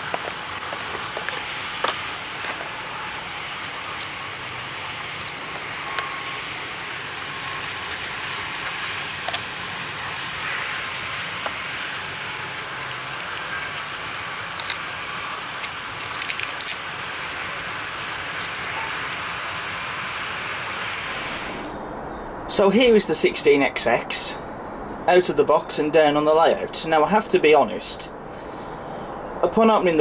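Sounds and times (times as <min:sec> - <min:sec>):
steady background hiss: 0:00.0 - 0:30.0
packaging clicks and taps: 0:05.2 - 0:18.8.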